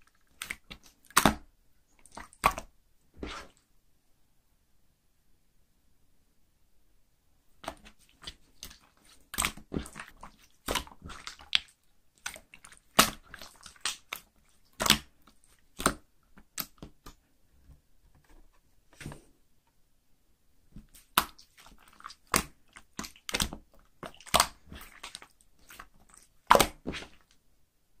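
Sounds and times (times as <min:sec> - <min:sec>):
slime popping and crackling: 0:07.6 - 0:17.1, 0:20.9 - 0:27.3.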